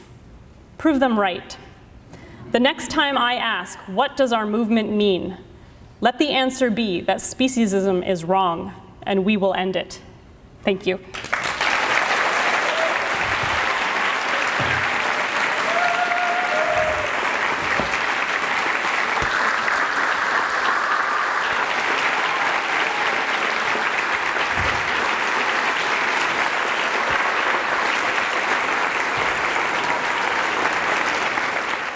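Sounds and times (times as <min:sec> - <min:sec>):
large audience applauding: 0:11.1 - 0:31.9.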